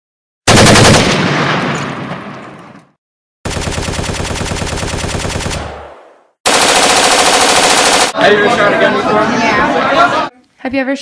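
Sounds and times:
rapid automatic gunfire: 0.5s - 1.6s, 3.4s - 8.2s
loud gunshot blast: 0.5s - 2.6s.

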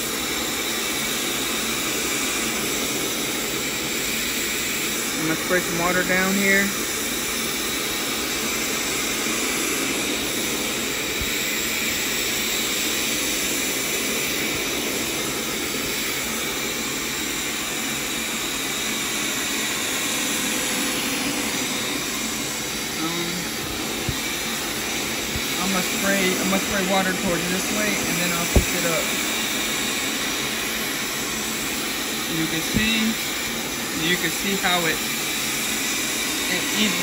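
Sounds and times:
carpet cleaner suction motor: 0.0s - 37.0s.

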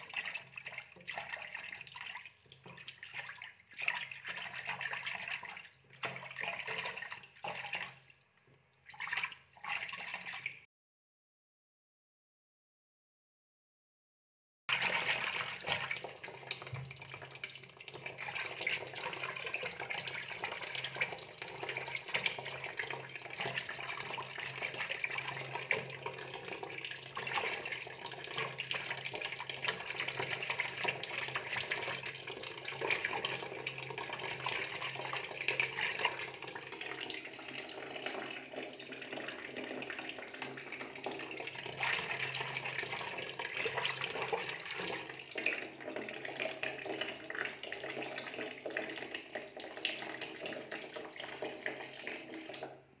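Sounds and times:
water running and splashing: 14.7s - 52.6s.

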